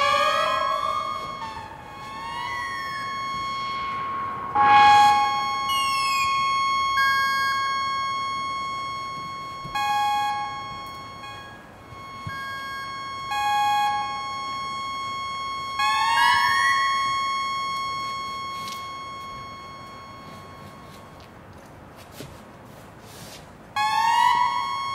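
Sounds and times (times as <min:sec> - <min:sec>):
synthesizer drone: 0:00.0 - 0:21.2
upward sliding synth glide: 0:02.0 - 0:06.2.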